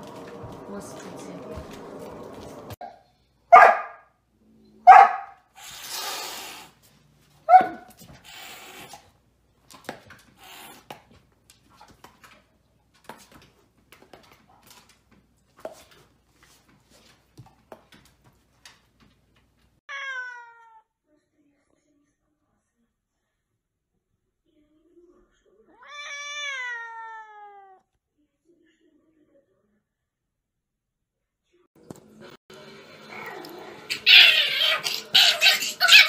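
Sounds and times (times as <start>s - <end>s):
dog barking loudly: 3.5s - 4.1s, 4.9s - 5.4s, 7.5s - 7.9s, 33.9s - 36.0s.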